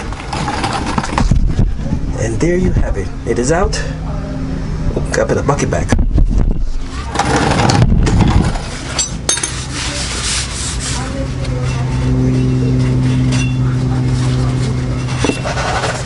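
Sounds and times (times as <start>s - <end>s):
steady low hum: 0.0s - 16.0s
rag rubbing against metal: 7.0s - 16.0s.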